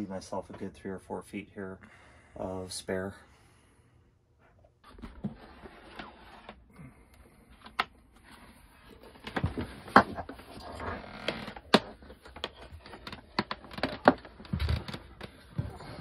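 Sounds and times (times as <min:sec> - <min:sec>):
rustling and scraping: 0:04.4 - 0:06.7, 0:07.3 - 0:16.0.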